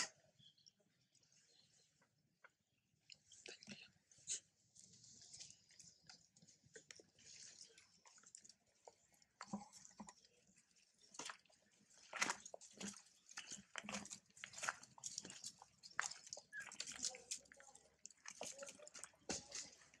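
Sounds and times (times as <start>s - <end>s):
dry leaves crackling and rustling: 16.2s - 17.8s.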